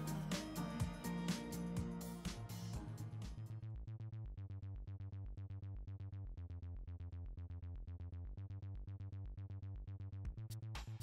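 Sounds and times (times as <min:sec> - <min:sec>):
electronic music with bass line: 0:00.0 - 0:11.0.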